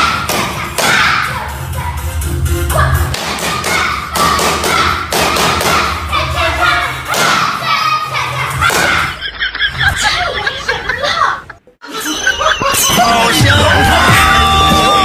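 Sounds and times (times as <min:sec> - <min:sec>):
background music: 0:00.0 - 0:10.3, 0:11.1 - 0:15.0
people laughing: 0:08.4 - 0:15.0.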